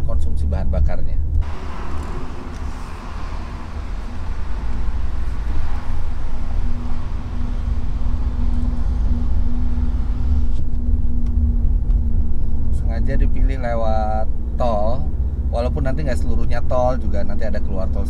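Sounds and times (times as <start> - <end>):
car engine and road rumble: 0.1 - 18.0
steady hum: 1.4 - 15.5.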